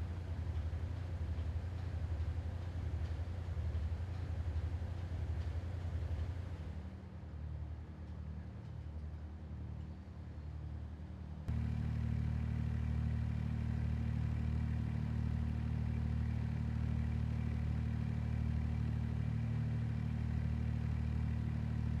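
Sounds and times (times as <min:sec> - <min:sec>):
heavy machinery engine humming: 0:11.5 - 0:22.0.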